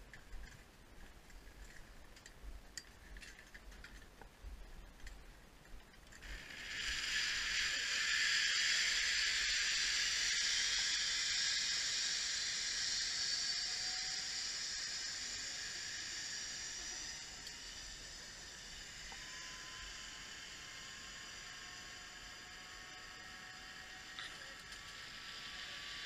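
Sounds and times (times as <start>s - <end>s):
zipline pulleys hissing on cable: 6.2s - 26.0s.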